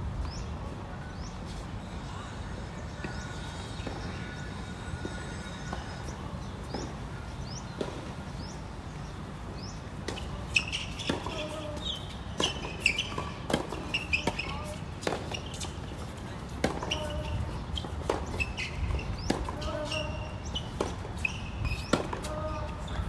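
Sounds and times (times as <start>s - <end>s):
racket striking tennis ball: 21.7s - 22.6s.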